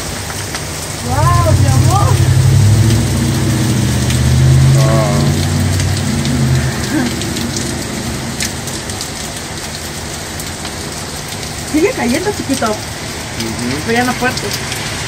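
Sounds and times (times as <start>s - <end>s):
hail falling: 0.0s - 15.0s
vehicle engine droning: 0.9s - 11.4s.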